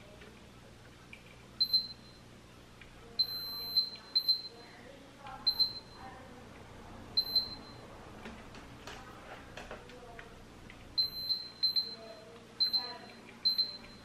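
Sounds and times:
multimeter beeping: 1.6 - 2.3, 3.2 - 4.8, 5.4 - 6.1, 7.2 - 7.9, 11.0 - 14.0.

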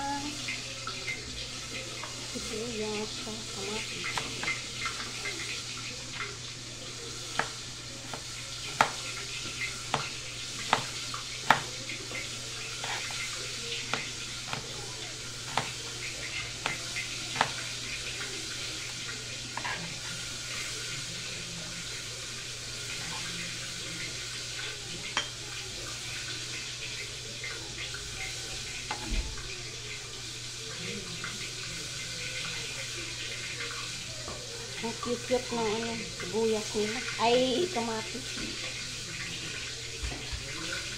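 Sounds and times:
fish sizzling in oil: 0.0 - 40.9
knife knocking on chopping board: 10.7 - 11.7.

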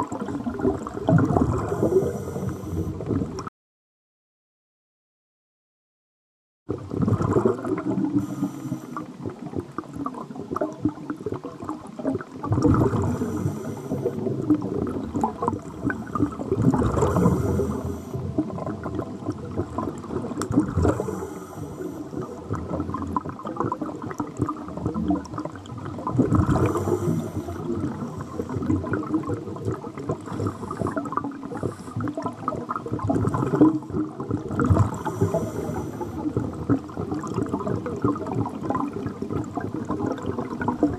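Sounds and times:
bubbling exhalations: 0.0 - 3.3, 6.9 - 9.5, 12.4 - 39.1
scuba regulator hiss: 8.2 - 9.0, 13.1 - 14.1, 17.1 - 18.2, 34.9 - 36.2.

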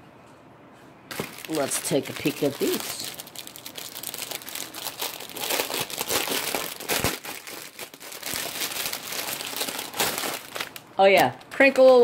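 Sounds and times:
plastic bags crinkling: 1.1 - 12.0.

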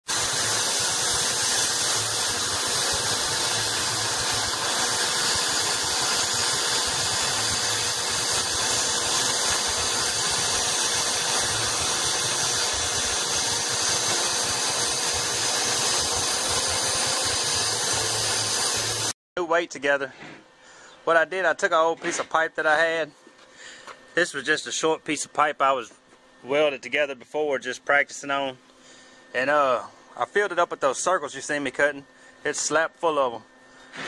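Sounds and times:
metal-cutting tool hissing: 0.0 - 19.2.

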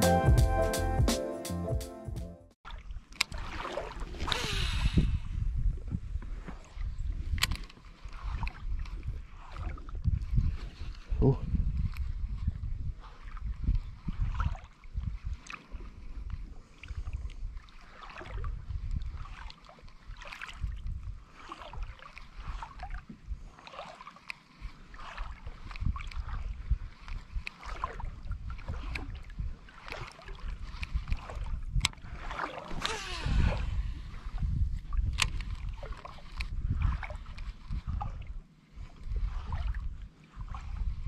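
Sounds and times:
water sloshing and splashing: 2.6 - 4.4, 5.7 - 41.0
wind buffeting microphone: 4.0 - 17.6, 18.2 - 19.3, 20.1 - 21.8, 25.3 - 41.0
fishing reel whirring: 32.7 - 33.9.

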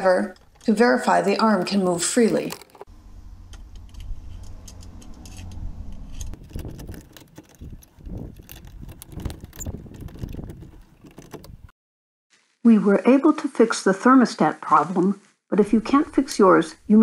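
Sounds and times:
small metallic clicks and rattles: 0.0 - 2.9, 3.5 - 11.6
low steady hum: 2.9 - 6.4.

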